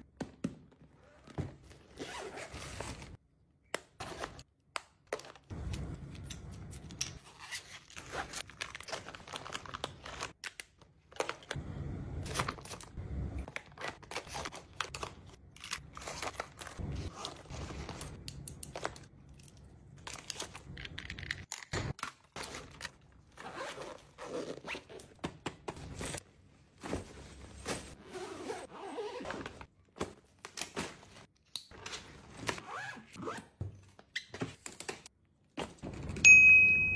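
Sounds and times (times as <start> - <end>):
zippers on fabric bags: 1.0 - 3.2, 23.3 - 25.0, 27.9 - 29.6
plastic and fabric rustling: 25.8 - 31.3.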